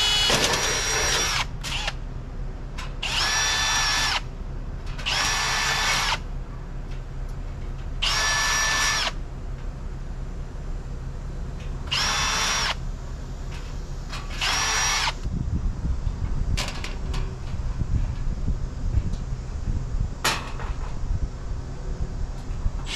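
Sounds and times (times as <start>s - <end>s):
power drill motor whine: 0.0s - 2.0s, 3.0s - 4.2s, 5.0s - 6.2s, 8.0s - 9.2s, 11.9s - 12.8s, 14.3s - 15.3s.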